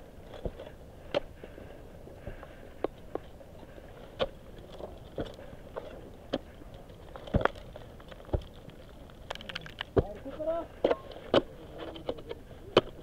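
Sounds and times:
ice axes striking frozen snow: 4.0 - 13.0.

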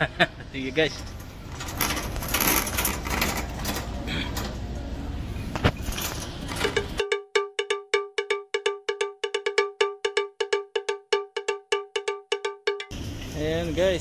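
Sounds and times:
shopping cart rattling and rolling: 0.8 - 7.0, 12.9 - 14.0
ringing cowbell-like strikes: 7.0 - 13.0.

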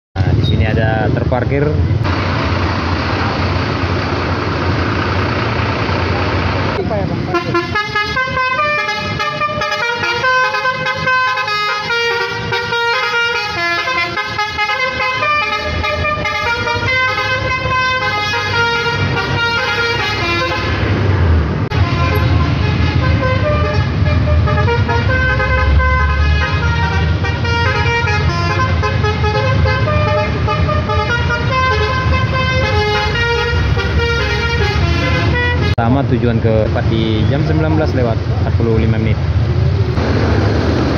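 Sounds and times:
bus diesel engine rumble: 0.2 - 40.9
multi-tone bus horn melody: 7.2 - 21.0, 21.7 - 35.8.

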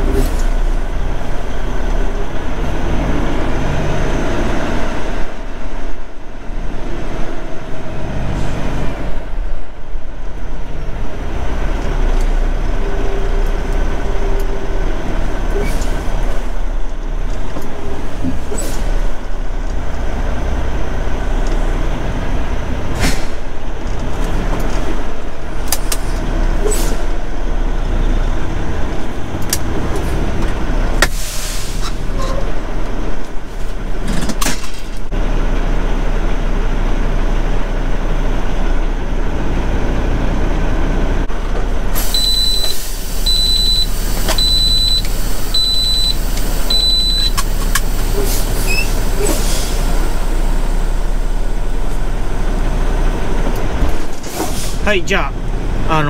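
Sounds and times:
diesel engine idling: 0.0 - 34.1, 35.0 - 56.0
high electronic beep: 42.2 - 47.4.

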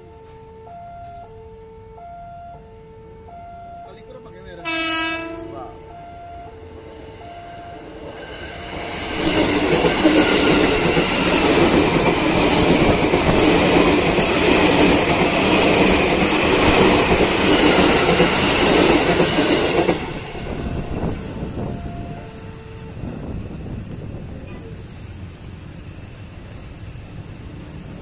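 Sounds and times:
electric train rumbling past: 0.0 - 28.0
train wheels clickety-clack: 8.0 - 22.0.

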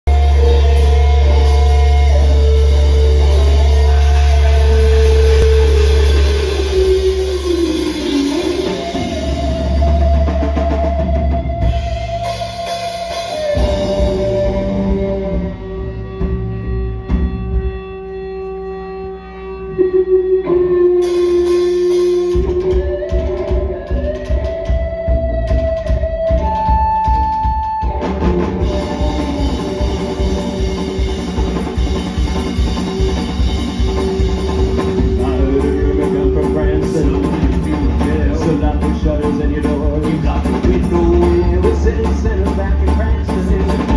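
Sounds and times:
steady bass pulse: 0.0 - 12.4, 28.4 - 43.9
drum kit: 0.0 - 18.8, 20.5 - 43.9
electric guitar: 0.0 - 43.9
live instrumental band: 0.0 - 43.9.

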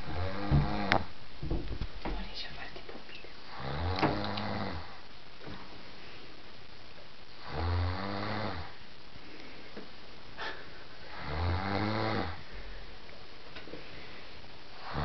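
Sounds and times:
woman snoring: 0.0 - 1.0, 3.5 - 5.0, 7.4 - 8.8, 10.4 - 12.4, 14.8 - 15.0.

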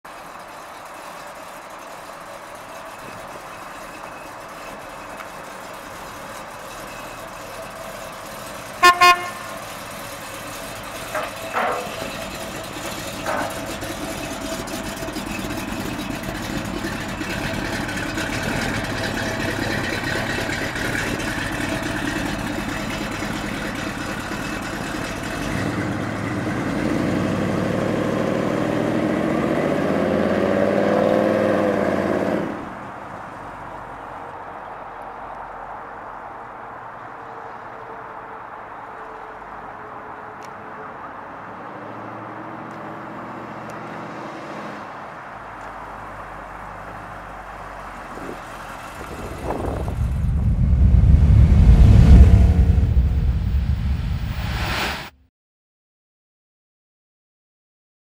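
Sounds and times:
car engine running: 0.1 - 26.4, 47.6 - 54.2
car horn toots: 8.7 - 9.8.

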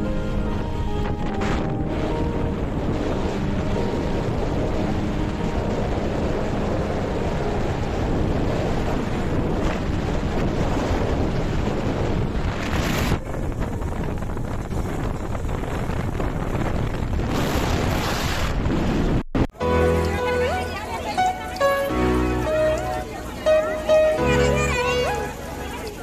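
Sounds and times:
road and engine noise: 0.0 - 18.6, 19.5 - 26.0
wind buffeting microphone: 0.0 - 26.0.

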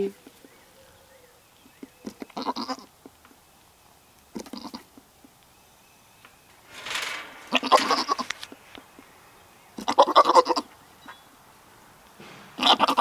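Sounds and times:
goat bleating: 2.0 - 2.9, 4.3 - 4.9, 9.8 - 10.7, 12.6 - 13.0.

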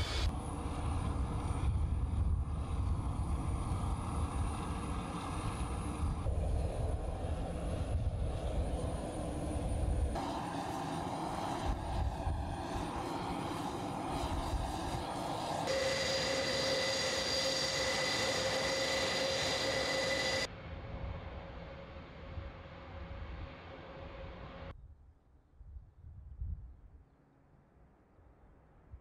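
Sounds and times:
rushing propeller noise: 0.0 - 20.5
loud engine whine: 0.0 - 24.7.

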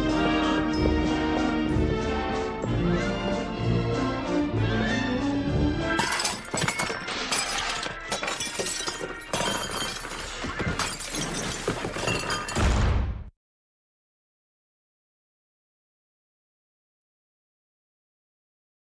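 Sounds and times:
music: 0.0 - 13.3
crashing and shattering: 5.9 - 12.8.

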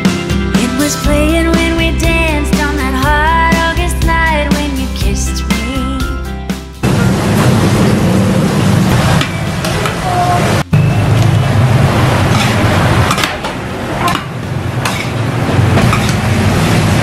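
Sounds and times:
metal spatulas scraping griddle: 12.2 - 13.4.

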